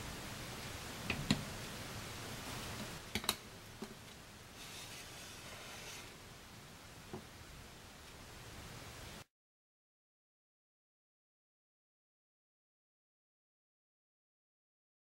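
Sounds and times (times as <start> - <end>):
faint soft scraping: 4.6 - 6.2.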